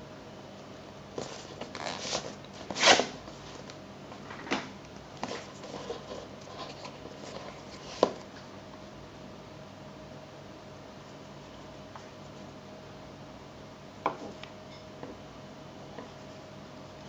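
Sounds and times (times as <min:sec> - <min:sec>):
cardboard rustling and scraping: 0:01.2 - 0:03.7, 0:05.2 - 0:08.4.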